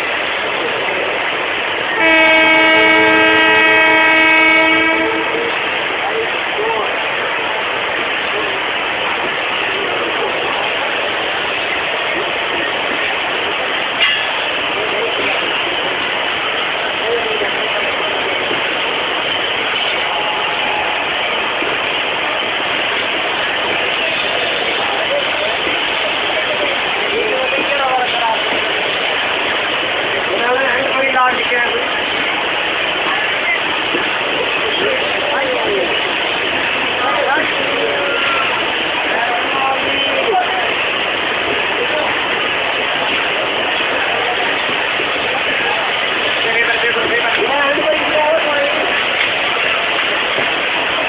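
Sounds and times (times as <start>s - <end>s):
train coaches rattling past: 0.0s - 51.0s
locomotive horn blast: 2.0s - 5.6s.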